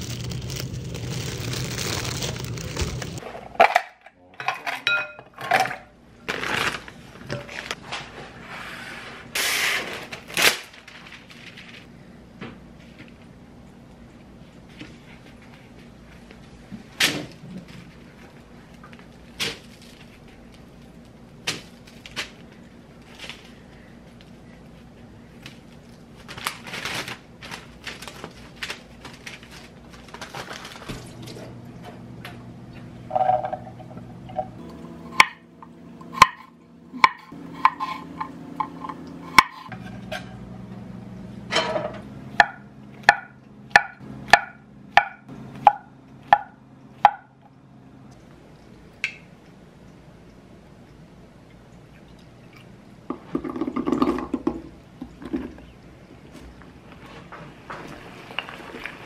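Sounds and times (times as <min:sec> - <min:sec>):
bread tearing rustle: 0:00.0 - 0:03.2, 0:06.3 - 0:07.8, 0:25.4 - 0:31.1.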